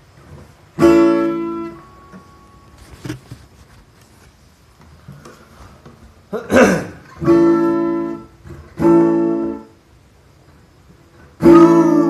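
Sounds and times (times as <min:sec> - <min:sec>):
acoustic guitar chord strummed: 0:00.0 - 0:03.2, 0:06.3 - 0:10.4, 0:11.1 - 0:12.0.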